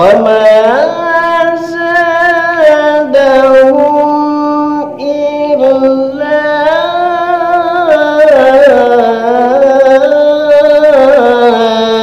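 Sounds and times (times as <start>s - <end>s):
man reciting melodically: 0.0s - 12.0s.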